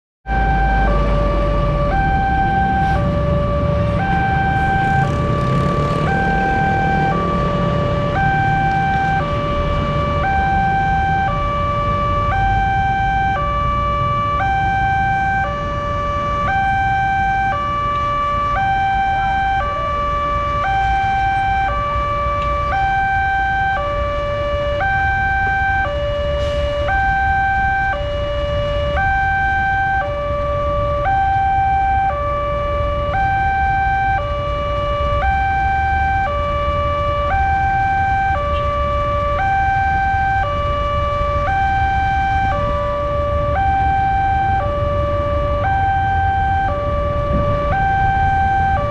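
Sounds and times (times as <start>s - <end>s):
low traffic rumble: 0.2s - 48.9s
level crossing alarm two-tone: 0.3s - 22.0s, 24.7s - 30.2s, 33.1s - 34.4s, 43.6s - 48.9s.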